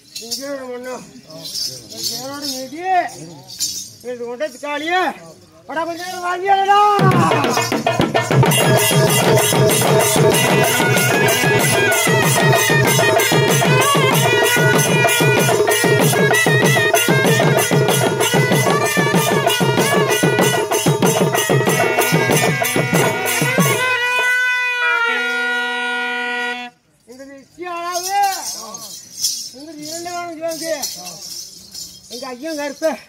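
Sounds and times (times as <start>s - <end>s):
barrel drums beaten with sticks: 7.0s - 24.1s
piping wind instrument melody: 8.4s - 26.9s.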